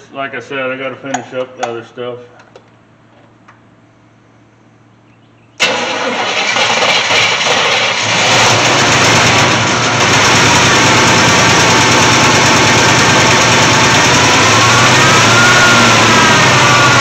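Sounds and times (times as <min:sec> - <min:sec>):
truck engine starting and running: 0:05.6 - 0:17.0.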